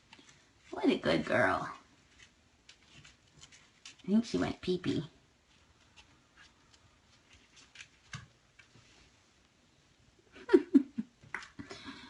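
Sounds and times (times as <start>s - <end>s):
faint ticks and scratches: 1.7s - 4.4s, 5.4s - 9.1s.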